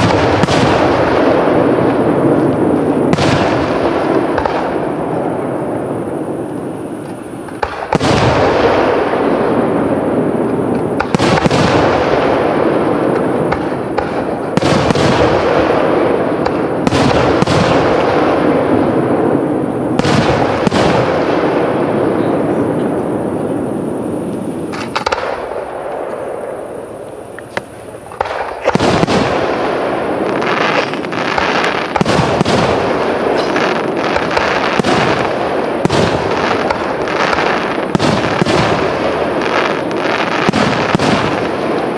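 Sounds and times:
rolling echo and crackle: 0.0s - 41.9s
firework shells bursting: 27.0s - 41.9s.

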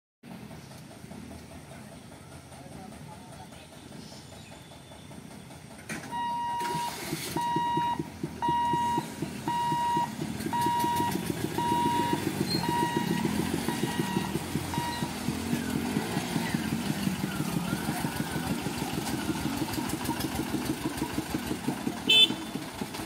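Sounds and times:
vehicle engines running: 0.2s - 23.0s
level crossing warning beeps: 6.0s - 15.3s.

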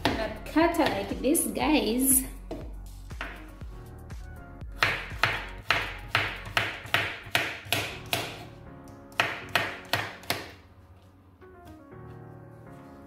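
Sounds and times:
knife chopping on wooden board: 2.5s - 3.5s, 4.8s - 8.5s, 9.1s - 10.6s.

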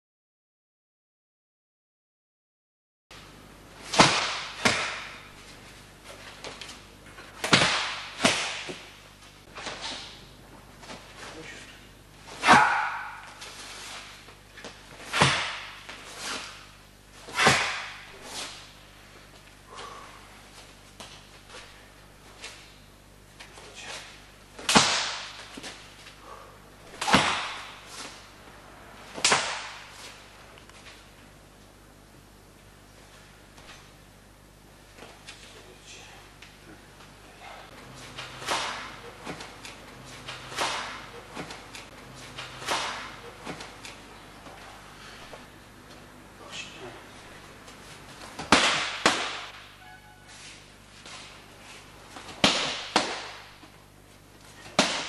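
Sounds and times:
hands slapping in martial arts drill: 3.8s - 5.3s, 6.1s - 10.2s, 12.2s - 18.7s, 23.4s - 26.1s, 26.9s - 28.3s, 29.1s - 31.0s, 36.4s - 44.7s, 47.7s - 49.8s, 51.0s - 53.8s, 54.6s - 55.0s.

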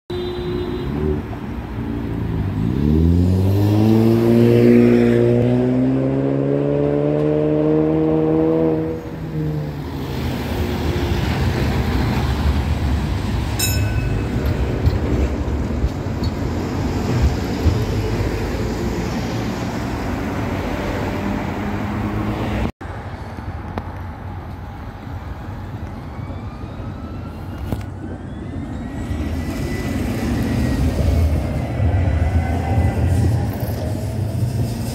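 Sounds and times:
traffic noise: 0.1s - 34.9s
vehicle engine accelerating: 2.4s - 9.2s
tram whines: 8.8s - 22.7s, 24.6s - 34.9s
tram rolling along rails: 9.0s - 34.9s.

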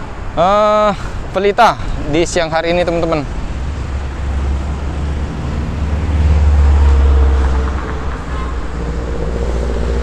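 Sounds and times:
cars and motorbikes passing: 0.0s - 10.0s
low traffic rumble: 0.0s - 10.0s.

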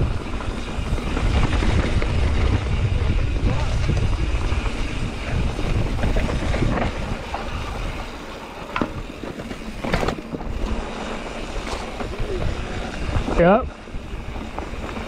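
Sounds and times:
rattling bike parts: 0.0s - 13.6s
bike tyres on dirt: 0.0s - 15.0s
wind buffeting microphone: 0.0s - 15.0s.

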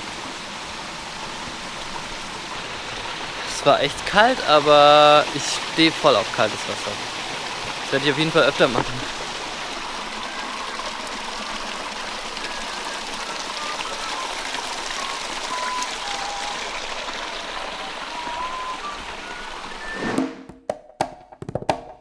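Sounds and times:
stream flowing: 0.0s - 20.2s
faint short high tones: 18.1s - 20.2s.

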